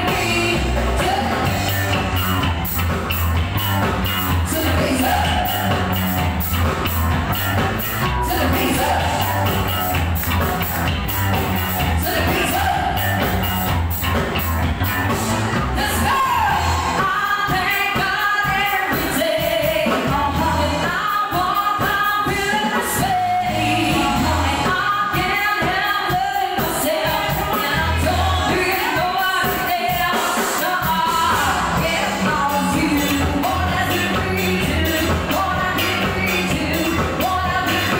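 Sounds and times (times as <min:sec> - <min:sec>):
people singing into microphones: 0:00.0 - 0:02.4, 0:04.5 - 0:06.1, 0:08.2 - 0:10.1, 0:11.8 - 0:13.4, 0:15.8 - 0:37.9
bass guitar: 0:00.0 - 0:30.0, 0:30.6 - 0:37.9
drum kit beat: 0:00.0 - 0:37.9
electric guitars: 0:00.0 - 0:37.9.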